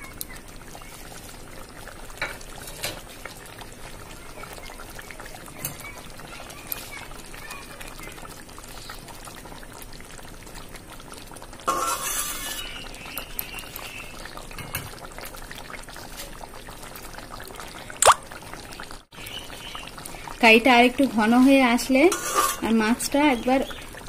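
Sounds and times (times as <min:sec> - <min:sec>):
curry bubbling: 0:00.0 - 0:24.0.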